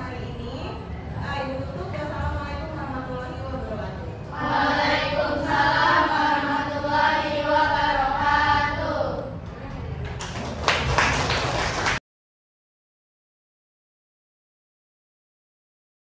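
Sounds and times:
girls singing in unison: 0:04.3 - 0:09.4
hand claps: 0:10.0 - 0:12.0.

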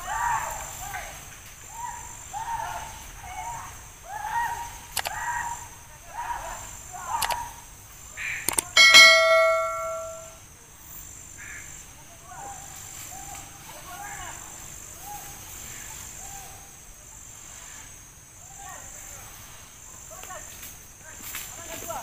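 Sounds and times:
high insect drone: 0:00.0 - 0:22.0
mouse clicks: 0:07.2 - 0:07.4
short repeating calls: 0:08.2 - 0:10.4
bell chime: 0:08.8 - 0:10.4.

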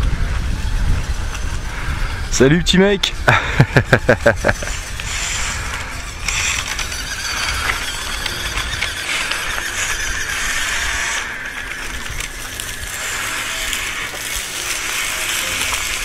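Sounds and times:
small electric motor whine: 0:00.0 - 0:02.4, 0:03.1 - 0:16.0
tyres crunching over gravel: 0:04.0 - 0:16.0.

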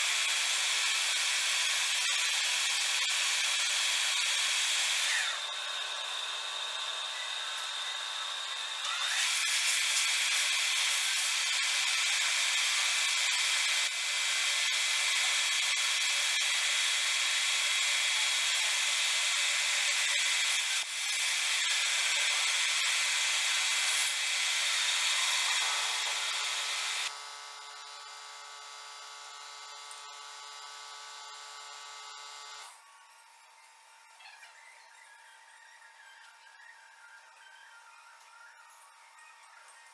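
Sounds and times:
lathe spindle whine: 0:00.3 - 0:33.9.

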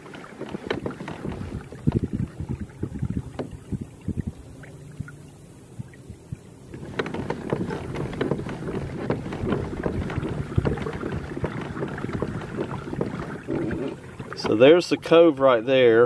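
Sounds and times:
water splashing along kayak: 0:00.0 - 0:16.0
light knocks: 0:03.2 - 0:03.7.

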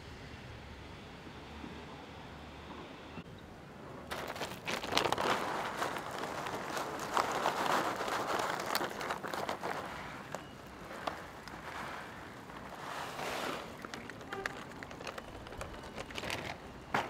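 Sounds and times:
newspaper rustling and crinkling: 0:04.1 - 0:17.0.

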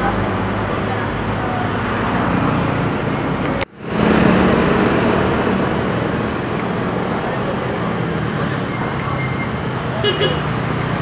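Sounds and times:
street traffic: 0:00.0 - 0:11.0.

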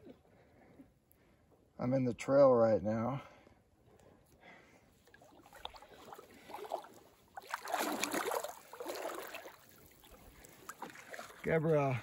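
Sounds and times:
feet sloshing through shallow water: 0:04.6 - 0:12.0.

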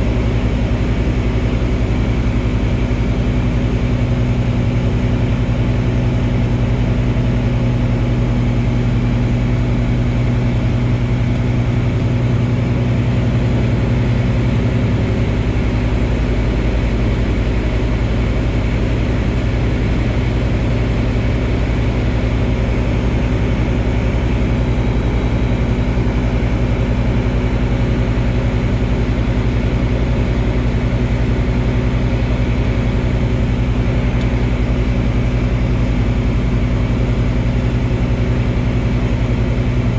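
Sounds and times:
aircraft engine drone: 0:00.0 - 0:39.9.

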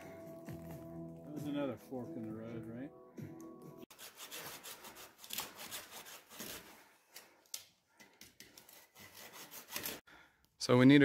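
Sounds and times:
hand saw cutting branch: 0:03.9 - 0:06.8, 0:08.5 - 0:10.0.

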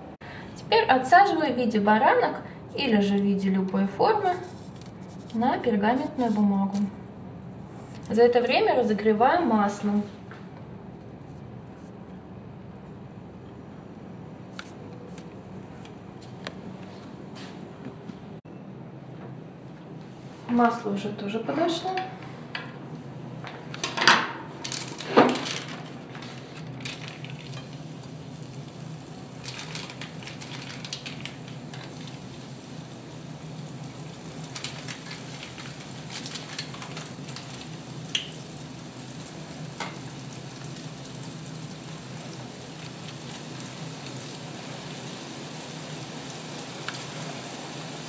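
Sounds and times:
dough sizzling in hot oil: 0:26.8 - 0:48.0.

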